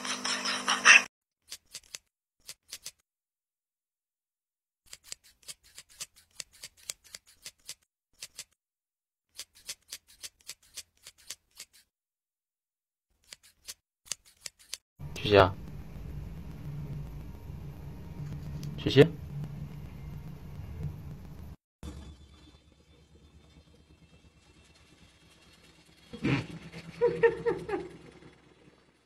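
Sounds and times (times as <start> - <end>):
scissors snipping fur: 1.4 - 3.0, 4.9 - 8.6, 9.3 - 11.9, 13.2 - 14.8
loud sound cut off: 15.0 - 29.0.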